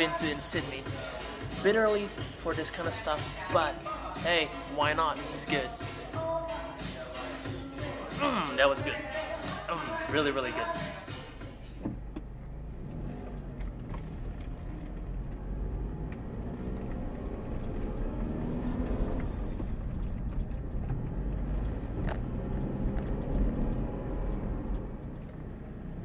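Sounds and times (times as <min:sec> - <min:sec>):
road noise: 0:08.3 - 0:26.0
car engine rumble: 0:10.2 - 0:26.0.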